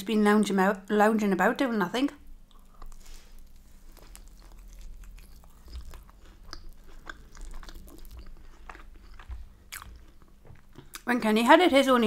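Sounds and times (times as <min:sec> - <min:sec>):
chewing with wet mouth clicks: 0:02.5 - 0:11.1.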